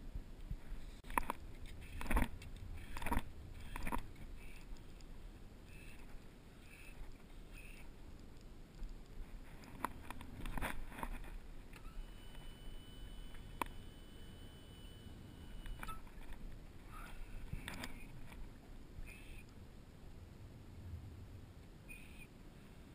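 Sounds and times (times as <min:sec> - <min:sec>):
low wind rumble: 0:00.0 - 0:12.0, 0:15.0 - 0:22.9.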